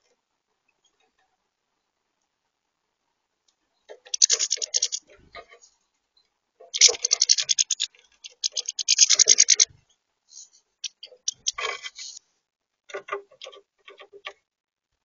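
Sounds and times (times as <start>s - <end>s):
bird feet scratching plastic tray: 3.9s - 5.6s, 6.7s - 9.7s
birds pecking seed on plastic: 3.9s - 5.7s, 6.6s - 9.7s, 10.4s - 12.2s.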